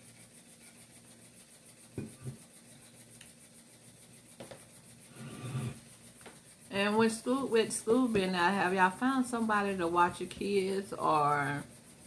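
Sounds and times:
cup rubbing: 1.8 - 3.0, 4.3 - 12.0
cup knocking on wooden tray: 2.0 - 2.4.

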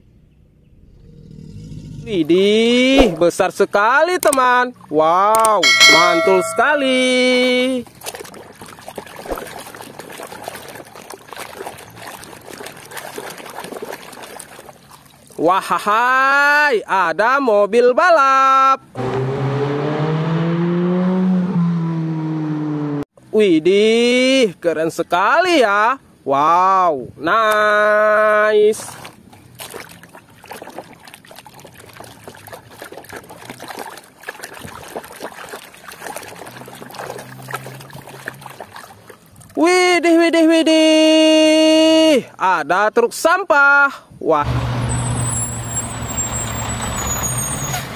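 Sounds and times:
water sloshing and splashing: 2.8 - 16.1, 27.5 - 39.7.

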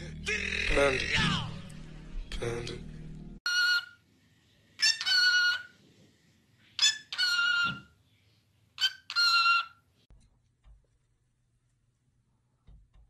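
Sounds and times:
cockatiel calling: 3.5 - 4.0, 4.8 - 5.7, 6.8 - 7.9, 8.8 - 9.8.

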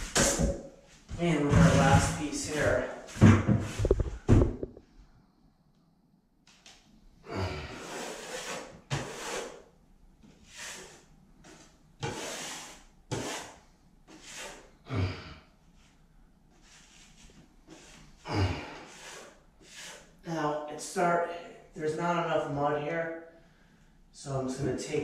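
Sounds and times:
taping knife scraping joint compound: 7.7 - 9.7, 10.5 - 14.7, 18.8 - 20.1.

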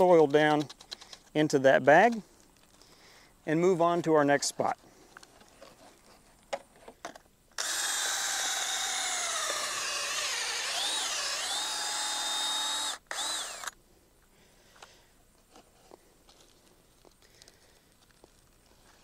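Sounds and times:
cordless drill motor whine: 7.6 - 13.8.

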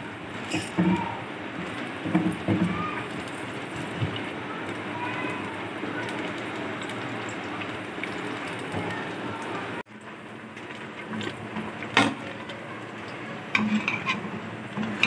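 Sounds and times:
spatula stirring: 13.5 - 15.0.

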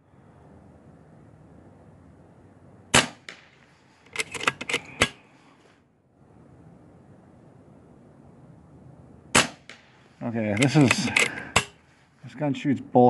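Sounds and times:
air rifle firing crack: 2.9 - 5.2, 9.3 - 10.0, 10.6 - 11.8
rifle mechanism clicks and clacks: 4.1 - 5.2, 10.5 - 11.7.

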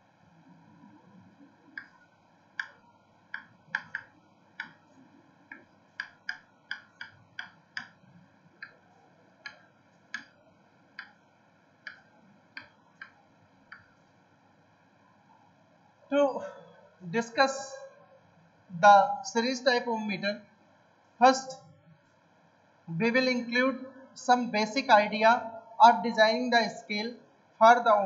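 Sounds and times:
chalk tapping on a blackboard: 2.6 - 4.8, 5.5 - 8.0.

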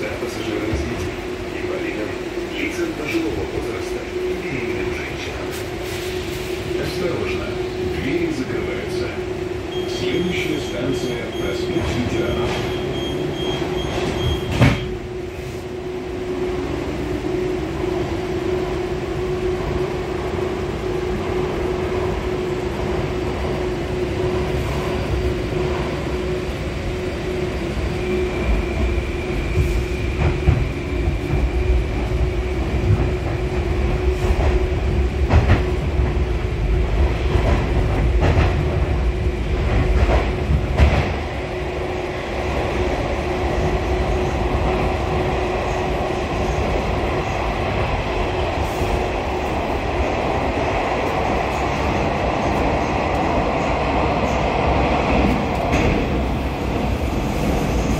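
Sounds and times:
train running gear rumble: 0.0 - 57.9
clacks from the rails: 10.2 - 14.9, 32.8 - 36.3, 37.0 - 39.0, 39.6 - 41.2.

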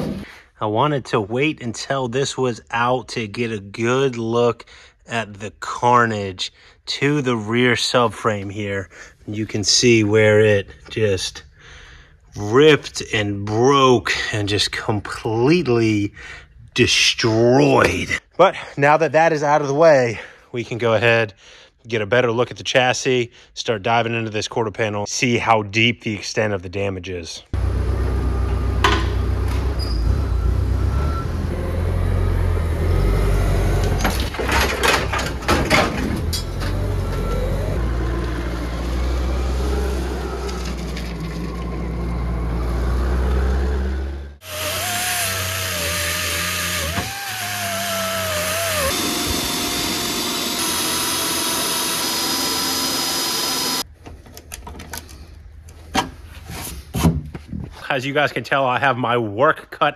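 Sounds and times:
forklift engine rumbling: 27.6 - 44.7
power tool whining: 36.5 - 53.8.

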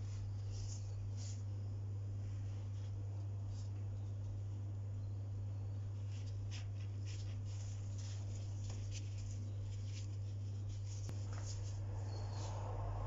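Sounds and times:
pastry rustling as it is rolled: 0.0 - 4.7, 5.8 - 12.6
steady low hum: 0.0 - 13.0
plastic gloves crinkling: 6.0 - 11.8.

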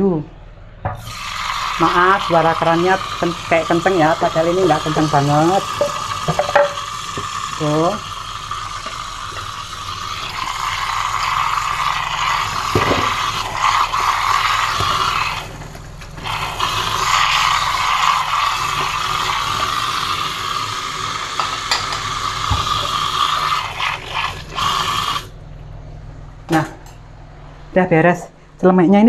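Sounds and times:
tap running into steel sink: 5.8 - 7.3, 21.4 - 22.8.

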